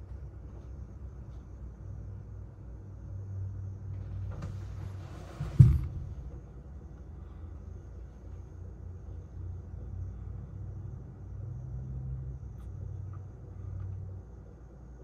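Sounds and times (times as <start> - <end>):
gas burner flame rumble: 3.7 - 11.4.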